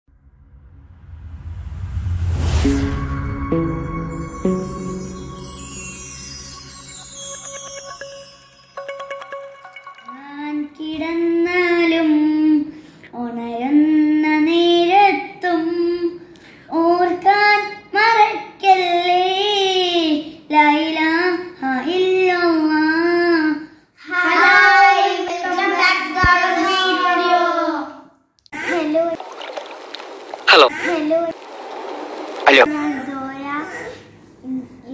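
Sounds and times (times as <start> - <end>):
child singing: 10.1 - 16.2, 16.8 - 28.0.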